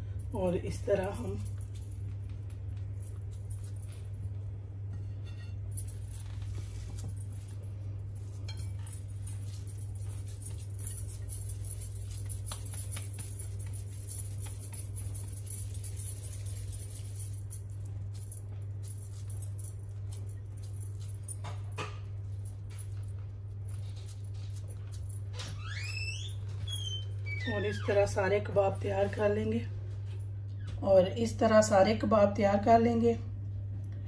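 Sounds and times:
steady low hum: 0:00.0 - 0:34.0
metal bangles jingling: 0:05.0 - 0:25.3.

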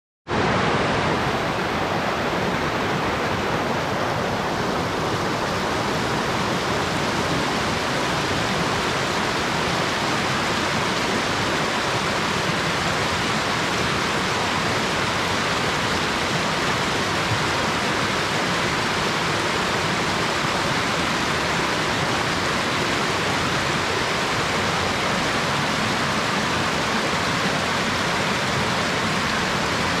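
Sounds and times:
waterfall rushing: 0:00.3 - 0:30.0.

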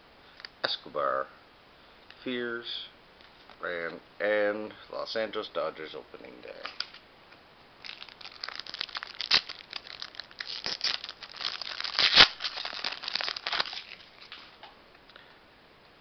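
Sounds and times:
foil wrapper crinkling and tearing: 0:07.8 - 0:14.6.

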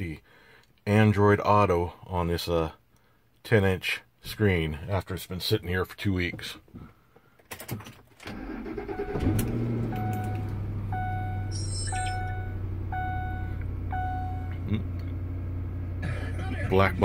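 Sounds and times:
car engine starting and idling: 0:07.6 - 0:17.0
dashboard warning chime: 0:08.8 - 0:14.6.

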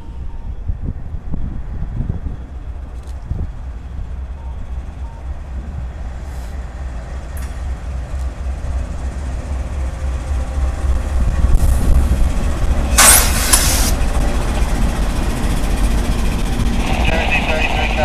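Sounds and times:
diesel locomotive engine rumble: 0:00.0 - 0:18.0
short burst of hiss: 0:13.0 - 0:14.0.

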